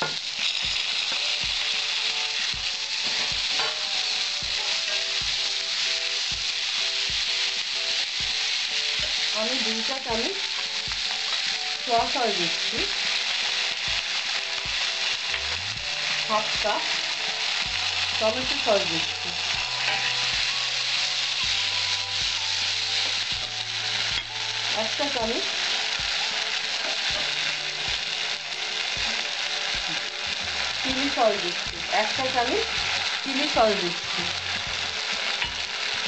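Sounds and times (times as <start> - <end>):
vegetables sizzling in hot oil: 0.0 - 36.0.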